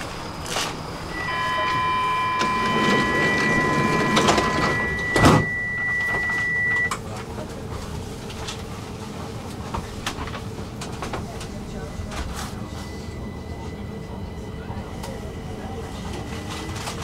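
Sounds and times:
sliding doors shutting: 0:00.5 - 0:06.9
high two-pitch warning tone: 0:01.1 - 0:06.9.

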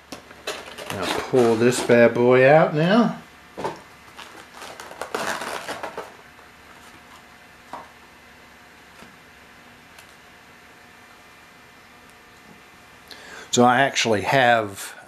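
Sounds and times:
packaging crinkling rustle: 0:00.3 - 0:01.9, 0:04.0 - 0:07.3.

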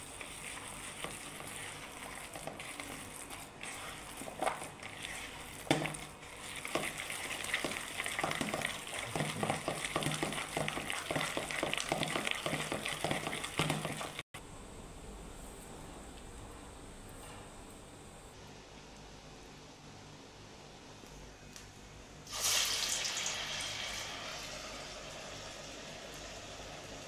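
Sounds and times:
hand squelching wet batter: 0:00.0 - 0:14.2.

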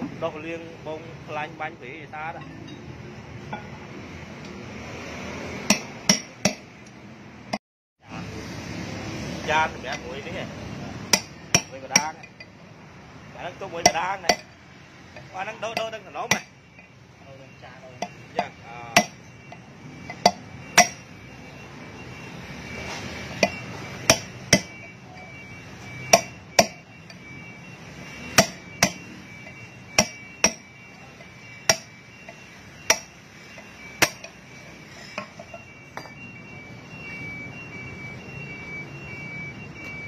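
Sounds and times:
hammer striking steel drift: 0:05.6 - 0:06.8, 0:11.1 - 0:12.6, 0:13.8 - 0:14.6, 0:15.2 - 0:16.9, 0:18.0 - 0:21.1, 0:22.8 - 0:25.3, 0:25.9 - 0:27.4, 0:28.2 - 0:36.2.

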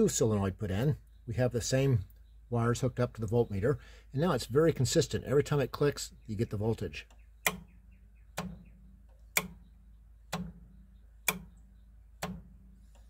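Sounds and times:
solenoid clicking: 0:07.0 - 0:13.0.

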